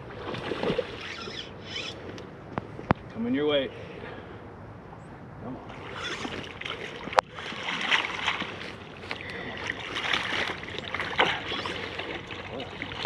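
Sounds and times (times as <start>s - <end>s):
fish thrashing and water splashing: 0.0s - 2.2s, 5.7s - 13.0s.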